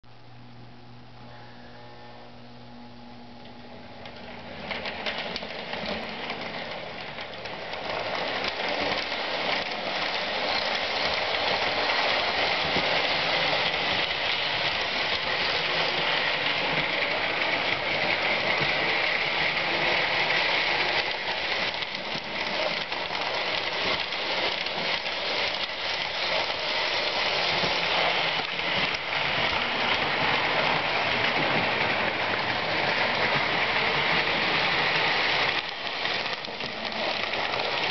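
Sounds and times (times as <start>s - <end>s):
clicking over rail joints: 3.4s - 37.9s
toy train rattling whir: 4.0s - 37.9s.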